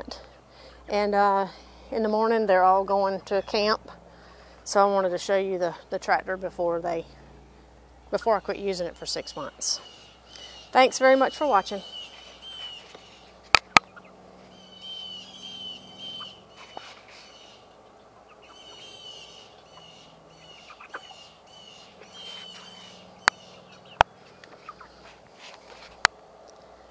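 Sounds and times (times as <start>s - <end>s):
chickens peeping: 11.3s - 25.3s.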